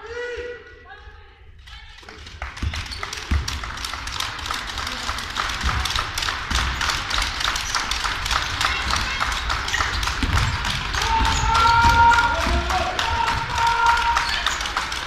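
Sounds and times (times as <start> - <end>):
sneaker footsteps and squeaks: 7.5 - 12.6
basketball thuds: 9.9 - 12.7.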